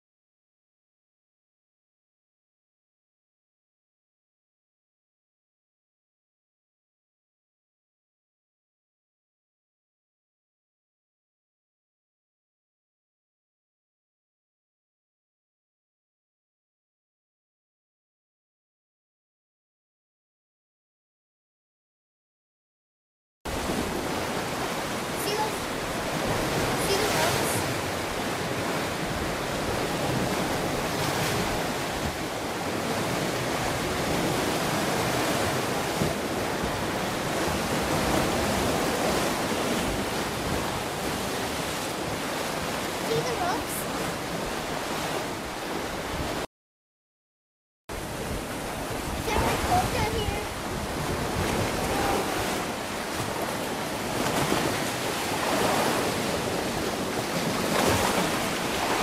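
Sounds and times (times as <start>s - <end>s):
waves washing against rocks: 23.5s - 46.4s, 48.0s - 59.0s
wind on microphone: 23.5s - 46.4s, 47.9s - 59.0s
wind buffeting microphone: 47.9s - 59.0s.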